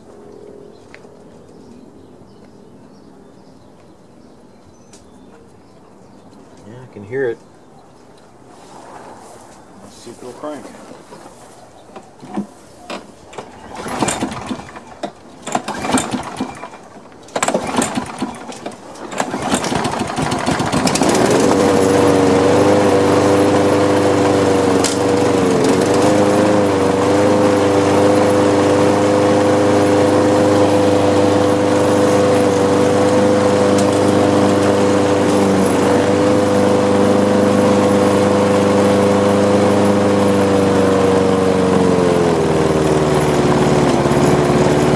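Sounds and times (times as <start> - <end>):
lawn mower engine cranking and running: 12.0 - 44.9.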